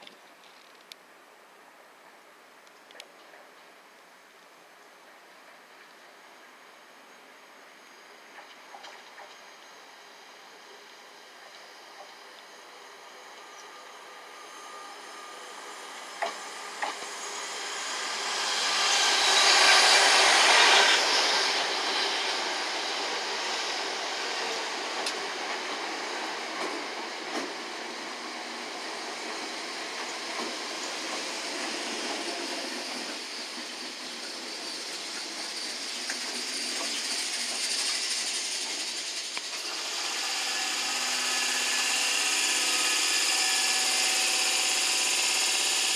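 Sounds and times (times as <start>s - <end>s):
train motor whining tones: 11.5s - 45.9s.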